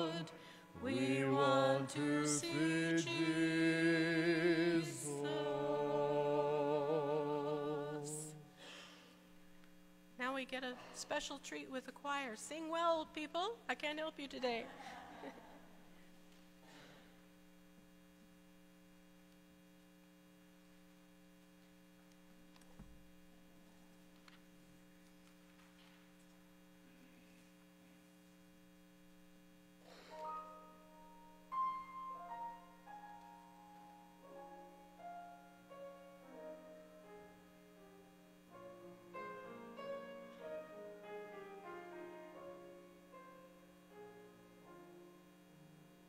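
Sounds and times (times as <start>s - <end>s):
electrical hum: 0.0s - 46.0s
piano melody over chords: 30.2s - 46.0s.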